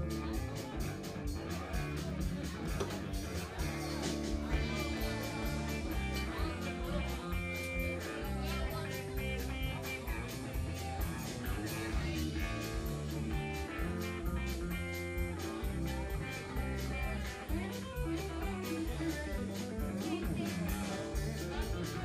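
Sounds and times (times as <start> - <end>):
country band music: 0.0 - 22.0
electric guitar picking: 0.0 - 22.0.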